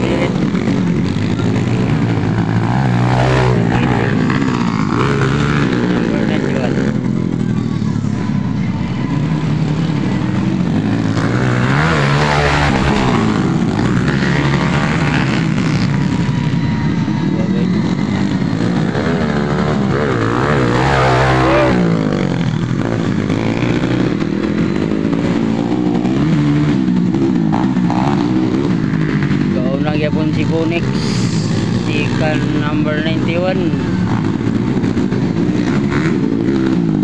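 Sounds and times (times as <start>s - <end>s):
motorcycle engines revving: 0.0s - 37.0s.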